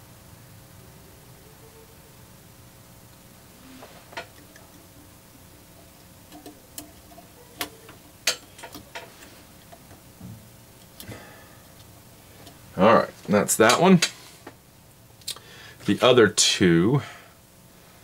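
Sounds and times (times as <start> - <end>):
wire leads clicking into eyelets: 6.2 - 10.0.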